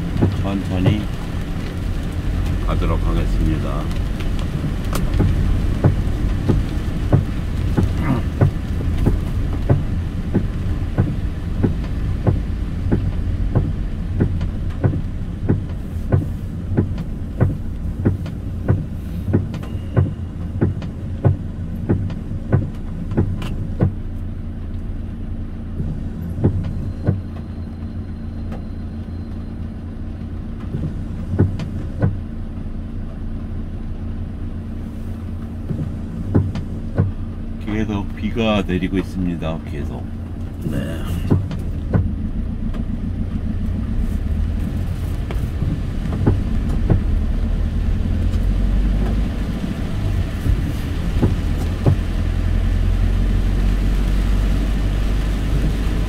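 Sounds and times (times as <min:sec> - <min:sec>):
car cabin rumble: 0:00.0 - 0:56.0.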